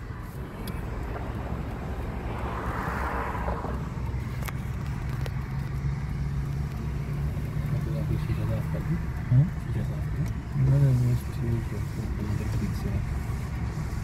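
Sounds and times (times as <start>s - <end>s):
hiss: 10.8s - 14.0s.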